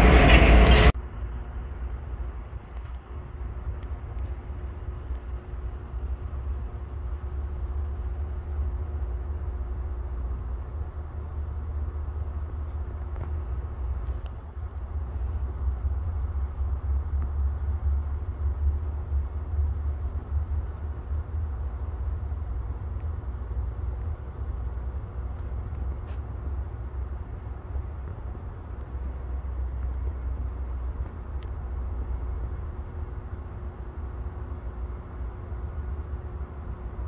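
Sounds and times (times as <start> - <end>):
diesel locomotives rumbling: 0.0 - 37.0
faint steady hum: 1.0 - 37.0.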